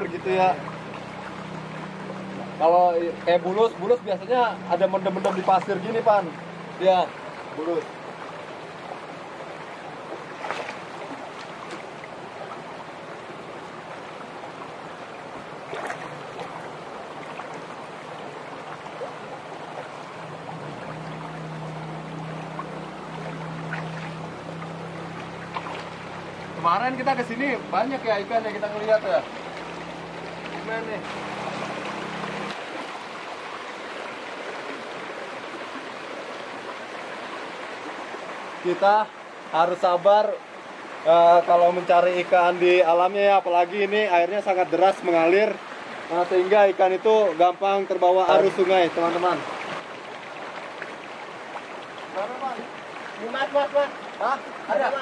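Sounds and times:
low steady hum: 0.0 - 38.6
river flowing over rocks: 0.0 - 55.0.

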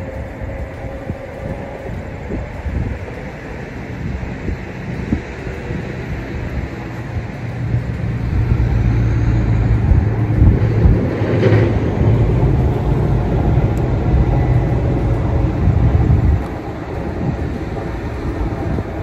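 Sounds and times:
boat motor humming: 0.0 - 19.0.

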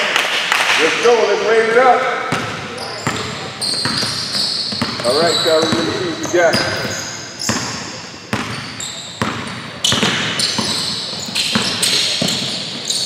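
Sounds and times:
basketball bouncing on hardwood floor: 2.3 - 8.6, 9.2 - 12.7
sneakers squeaking on court: 2.3 - 13.0.

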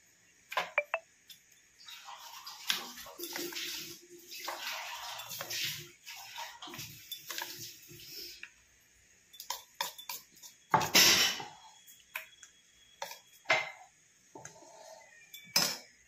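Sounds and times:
metal spoon scraping and clinking: 4.9 - 5.9, 9.3 - 11.5, 15.0 - 15.9.

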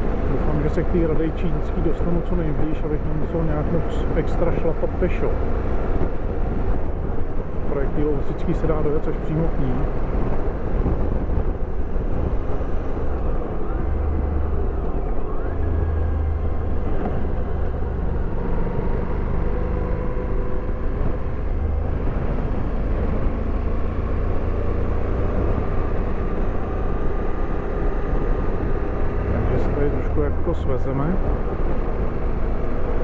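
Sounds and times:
motorcycle cruising: 0.0 - 33.0
wind noise on microphone: 5.4 - 29.6.

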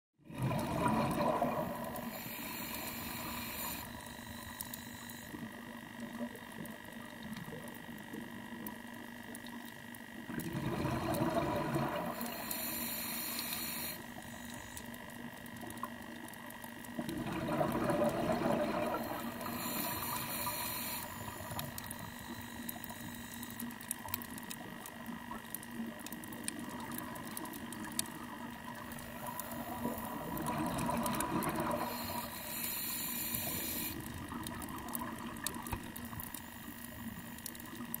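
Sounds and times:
faint steady hum: 0.2 - 38.0
diver breathing through regulator: 0.6 - 5.3, 10.8 - 14.9, 18.3 - 23.5, 29.2 - 34.1.

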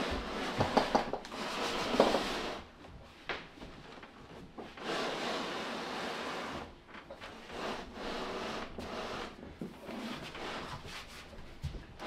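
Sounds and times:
fridge scraping across tiled floor: 0.0 - 2.7, 4.7 - 11.4.

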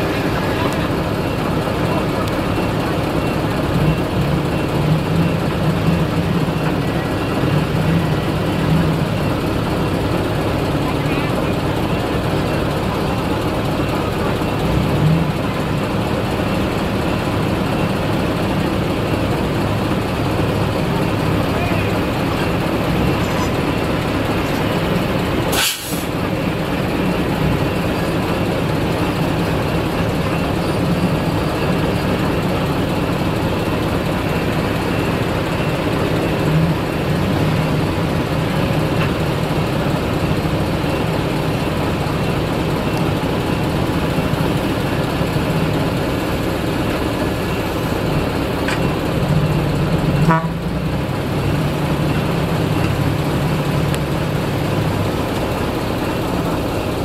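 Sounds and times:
heavy diesel engines running: 0.0 - 57.0.

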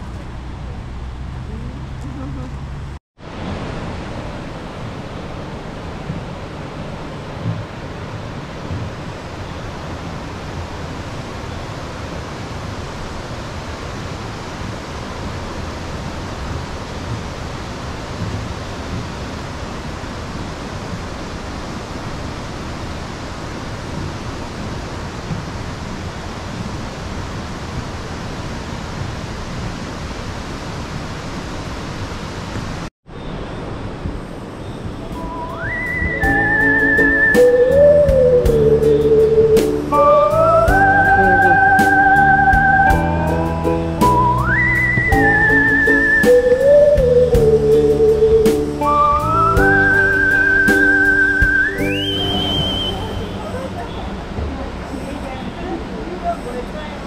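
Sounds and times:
river rapids rushing: 35.1 - 57.0.

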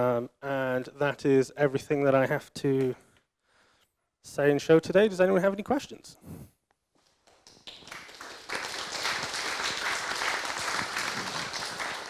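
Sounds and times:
audience applauding: 7.3 - 12.0.

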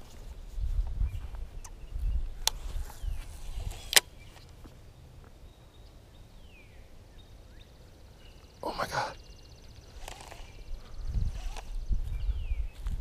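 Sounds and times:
wind and microphone handling rumble: 0.0 - 4.4, 9.6 - 13.0.

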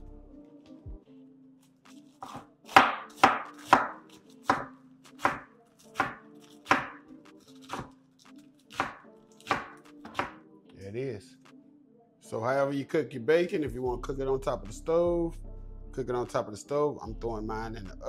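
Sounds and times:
knife chopping on cutting board: 2.2 - 8.0, 8.7 - 10.4.

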